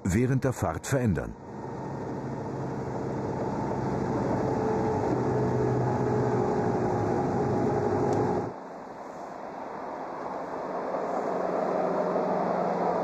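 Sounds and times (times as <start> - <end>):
diesel engine running: 1.3 - 8.5.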